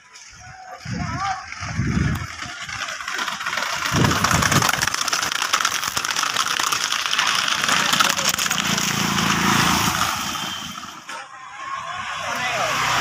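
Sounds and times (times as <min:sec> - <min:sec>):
motorcycle engines running: 0:01.8 - 0:11.1
dense rushing noise: 0:03.4 - 0:11.0.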